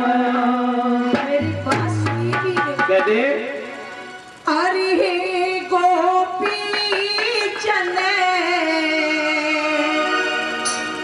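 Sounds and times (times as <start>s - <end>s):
woman singing folk song: 4.5s - 10.0s.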